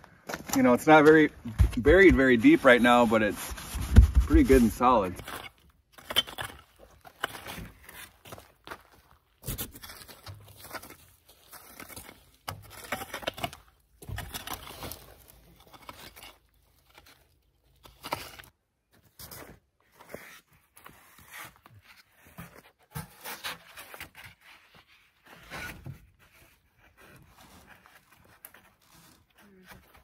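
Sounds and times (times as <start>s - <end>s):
foam boards scraping and rustling: 0.3s - 30.0s
digging tool scraping soil: 2.1s - 8.2s.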